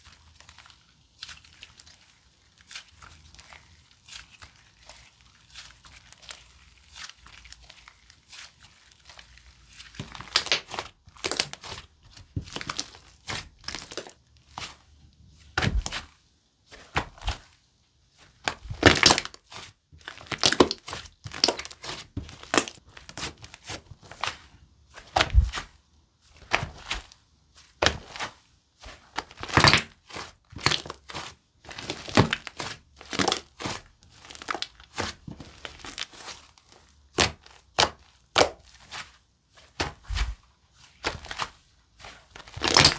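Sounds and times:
slime crackling and popping: 0:00.1 - 0:14.7, 0:18.4 - 0:24.4, 0:27.8 - 0:39.1, 0:41.0 - 0:42.9.

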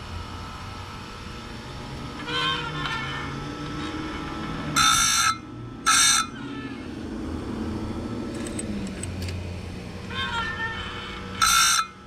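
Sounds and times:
bench grinder running: 0:00.0 - 0:12.0
grinding wheel on chain tooth: 0:02.2 - 0:06.4.

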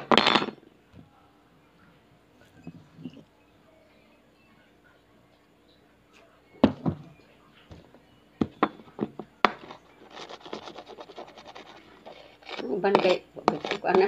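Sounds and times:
ceramic mug knocking on table: 0:06.6 - 0:07.0, 0:08.4 - 0:09.8
faint rapid scratching: 0:09.5 - 0:14.0.

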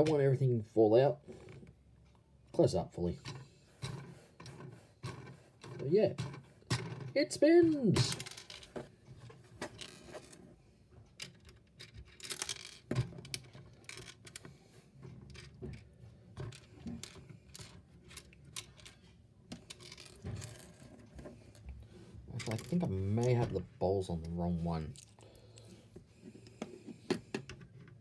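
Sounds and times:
plastic toy blocks clicking: 0:11.2 - 0:14.4.

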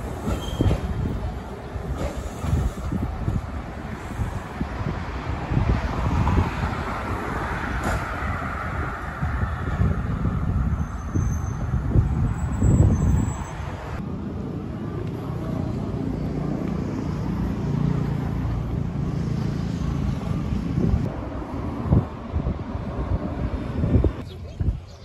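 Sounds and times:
road traffic rumble: 0:00.0 - 0:25.0
wind on microphone: 0:00.1 - 0:14.0, 0:19.6 - 0:25.0.

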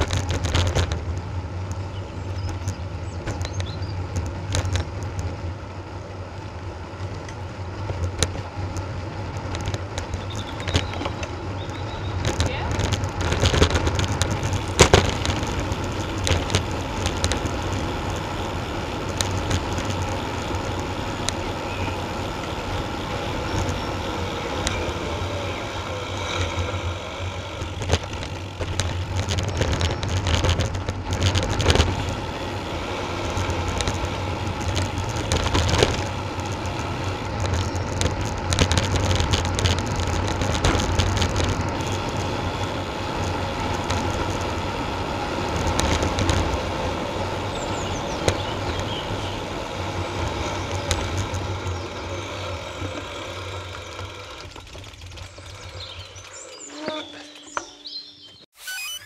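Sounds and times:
tyres rumbling on tarmac: 0:00.0 - 0:58.4
short knocks from road bumps: 0:07.2 - 0:44.7.

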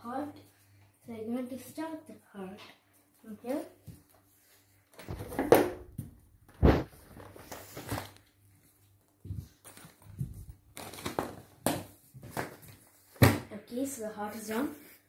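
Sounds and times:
books falling onto tiled floor: 0:05.0 - 0:08.2, 0:09.2 - 0:13.5.

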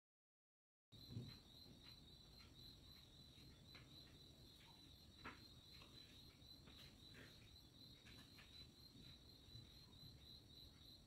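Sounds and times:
crickets chirring: 0:01.0 - 0:11.0.

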